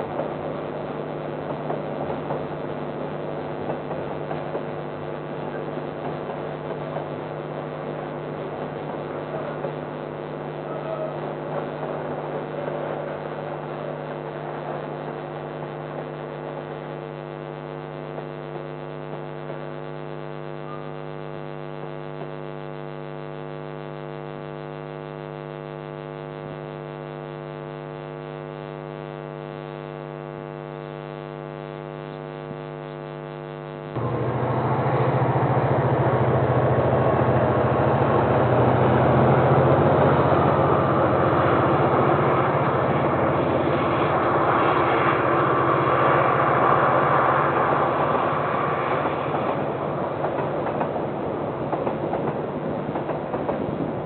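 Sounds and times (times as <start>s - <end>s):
passing train rumble: 0.0s - 15.2s, 34.0s - 54.0s
electrical mains hum: 0.0s - 54.0s.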